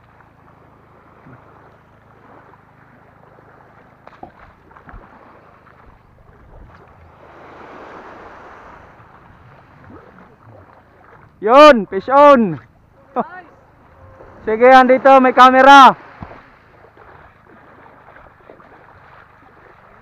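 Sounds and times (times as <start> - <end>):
wind on microphone: 5.8 - 11.4
waves washing onto pebbles: 6.6 - 9.8.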